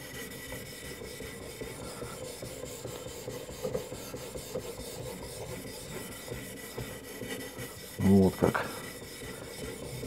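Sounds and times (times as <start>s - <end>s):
sharpening stone scraping knife: 4.9s - 10.0s.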